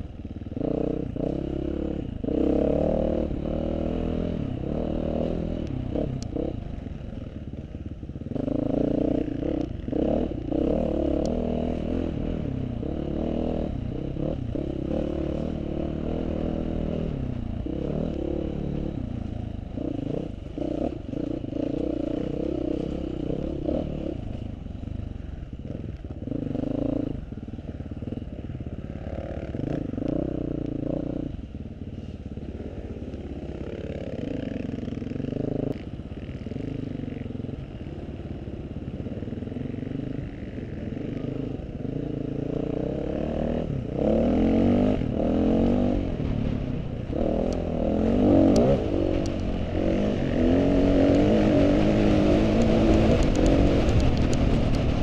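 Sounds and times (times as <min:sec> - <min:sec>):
motorcycle engine revving: 0:00.0 - 0:55.0
light ticks: 0:48.5 - 0:49.6, 0:52.4 - 0:54.9.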